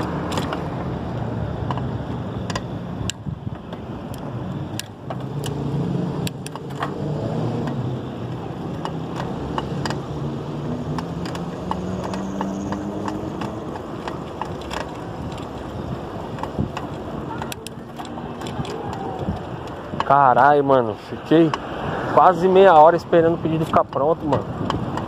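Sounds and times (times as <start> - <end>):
street noise: 0.0 - 25.0
vehicle engine humming: 0.0 - 25.0
sharp clicks: 1.6 - 5.6, 6.2 - 7.0, 10.8 - 20.2.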